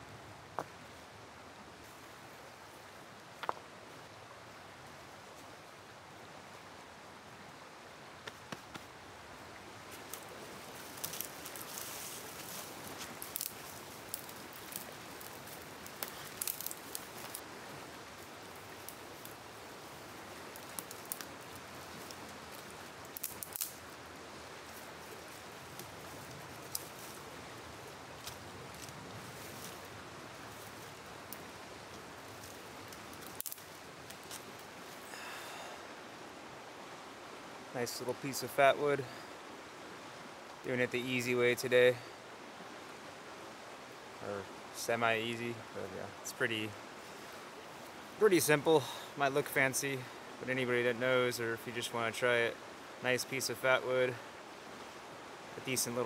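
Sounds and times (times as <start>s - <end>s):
flowing river water: 0.0s - 56.0s
small clicks and rustles: 9.9s - 17.5s, 20.5s - 24.0s, 24.7s - 27.2s, 30.5s - 35.0s.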